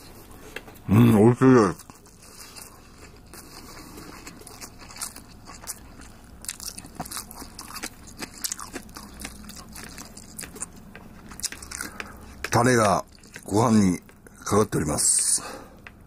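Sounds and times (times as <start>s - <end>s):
person chewing crunchy food: 1.7s - 14.5s.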